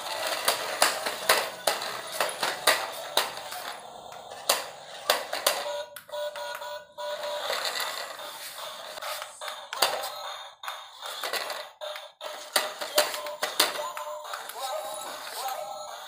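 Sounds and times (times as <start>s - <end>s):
toy car clattering on concrete: 0.0s - 5.8s, 7.1s - 10.2s, 10.9s - 16.0s.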